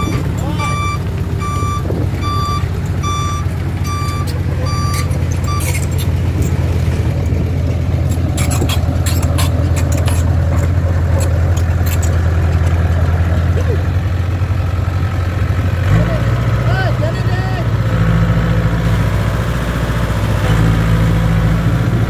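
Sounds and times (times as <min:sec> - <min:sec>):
reversing alarm beeping: 0:00.0 - 0:06.0
diesel engine rumble: 0:00.0 - 0:22.0
metallic clicks and clanks: 0:08.1 - 0:13.5.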